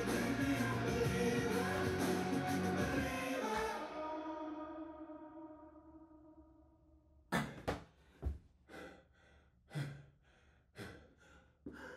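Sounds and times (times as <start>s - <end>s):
person breathing hard: 7.4s - 11.9s.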